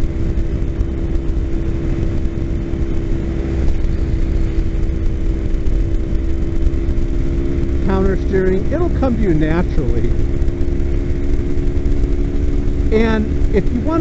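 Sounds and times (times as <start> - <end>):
motorcycle engine cruising: 0.0 - 14.0
wind rumble on microphone: 0.0 - 14.0.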